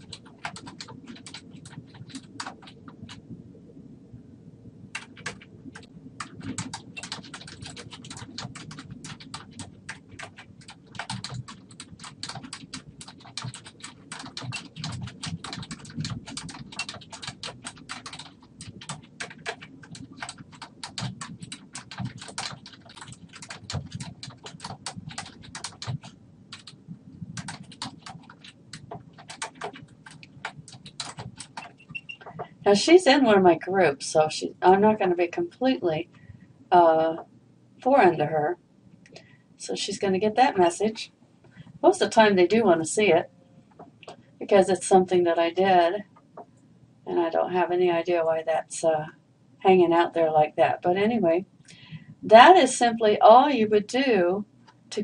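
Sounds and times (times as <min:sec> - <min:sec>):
computer keyboard typing: 0:00.0 - 0:03.2, 0:04.9 - 0:32.6.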